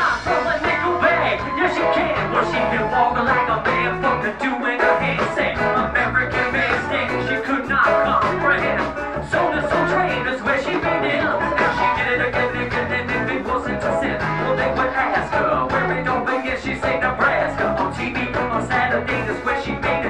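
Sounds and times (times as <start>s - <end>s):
live band playing upbeat music: 0.0s - 20.0s
person singing: 0.0s - 20.0s
steady drum beat: 0.0s - 20.0s.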